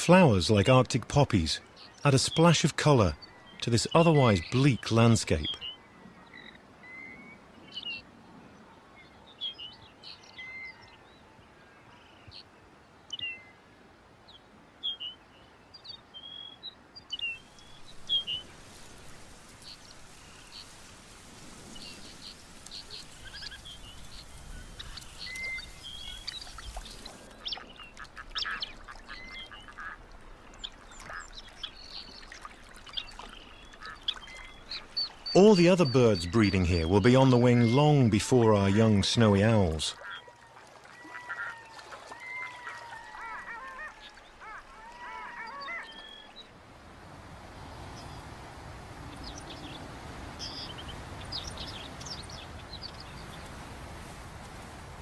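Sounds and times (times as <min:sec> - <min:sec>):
birds chirping and whistling: 0:17.1 - 0:18.6, 0:21.8 - 0:29.7, 0:50.4 - 0:53.4
soft hiss: 0:17.4 - 0:28.5
rapid harsh bird calls: 0:49.0 - 0:53.6.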